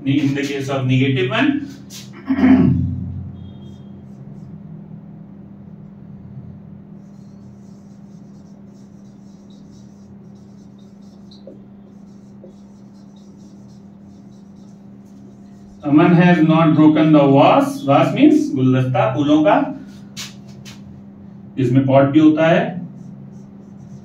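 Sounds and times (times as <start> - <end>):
low electrical hum: 0.0 - 24.0
marker pen squeaking on whiteboard: 3.4 - 4.6, 7.0 - 18.2, 22.9 - 24.0.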